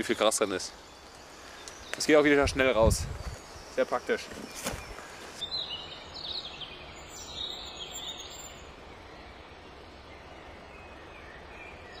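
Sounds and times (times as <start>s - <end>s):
bird chirps: 0.0s - 12.0s.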